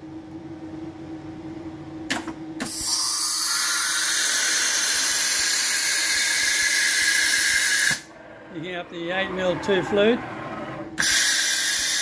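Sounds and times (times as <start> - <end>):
compressed air hissing: 2.6 - 8.2, 11.0 - 12.0.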